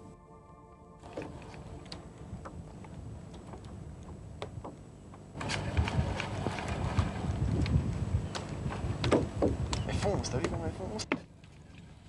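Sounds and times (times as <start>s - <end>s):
wind rumble on microphone: 5.4s - 11.0s.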